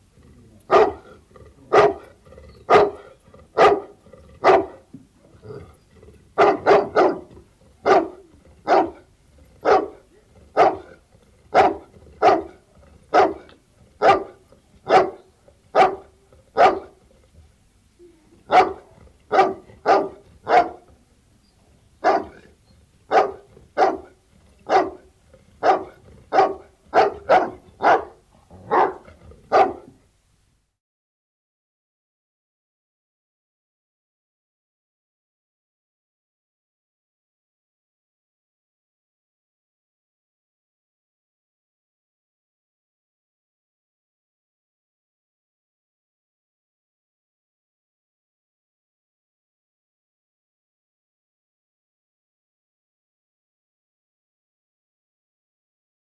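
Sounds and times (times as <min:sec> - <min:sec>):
dog barking: 0:00.7 - 0:02.1, 0:02.7 - 0:04.8, 0:06.4 - 0:17.0, 0:18.5 - 0:20.9, 0:22.0 - 0:22.5, 0:23.1 - 0:30.0.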